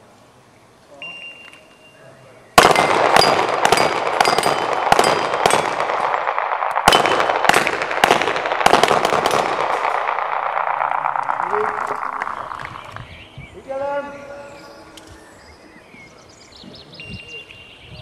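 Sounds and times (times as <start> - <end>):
bullets ringing on steel plates: 2.6 - 6.3
handgun shots: 2.6 - 10.6
echoing din: 2.6 - 13.3.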